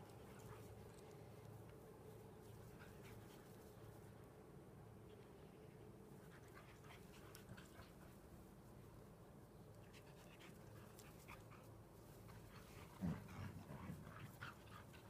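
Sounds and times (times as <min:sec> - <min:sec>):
dogs panting: 0:09.8 - 0:15.0.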